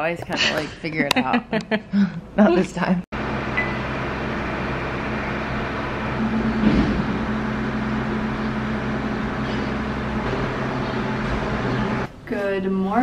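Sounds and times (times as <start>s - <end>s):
low mechanical hum: 3.2s - 13.0s.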